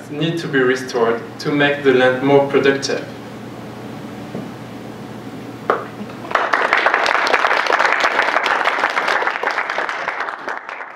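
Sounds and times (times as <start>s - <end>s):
audience applause: 6.2s - 10.9s.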